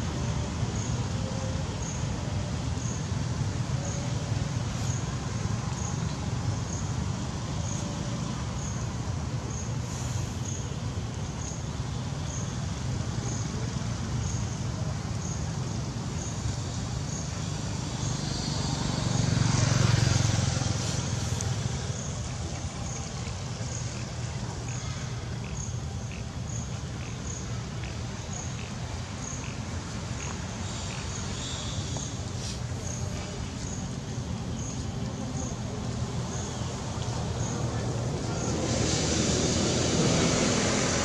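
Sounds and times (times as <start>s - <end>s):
road traffic rumble: 0.0s - 41.0s
vehicle passing: 17.7s - 24.1s, 36.8s - 41.0s.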